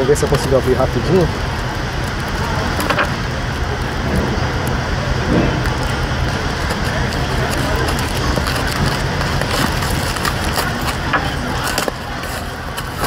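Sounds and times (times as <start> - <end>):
low background rumble: 0.0 - 13.0
cardboard crackling: 5.2 - 13.0.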